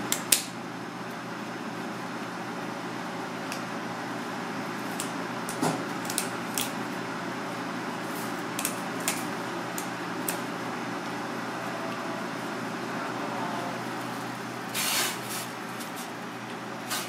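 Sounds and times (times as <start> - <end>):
steady background hum: 0.0 - 17.0
kitchen shears snipping: 4.9 - 6.8.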